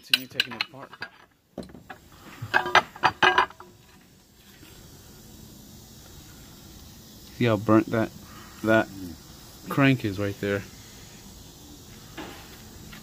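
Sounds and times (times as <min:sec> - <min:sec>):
metallic clinks and knocks: 0:00.0 - 0:03.7.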